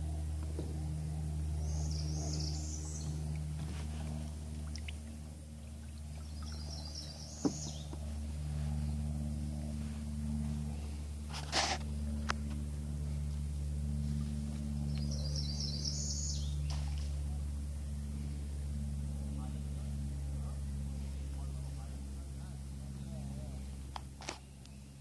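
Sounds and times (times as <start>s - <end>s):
steady low hum: 0.0s - 25.0s
songbird trilling: 1.6s - 3.2s, 6.2s - 8.0s, 14.9s - 16.7s.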